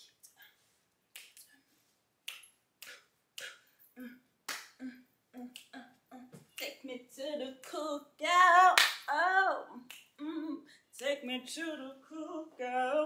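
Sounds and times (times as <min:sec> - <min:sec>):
person humming softly: 0:02.8 - 0:06.8, 0:09.6 - 0:10.6.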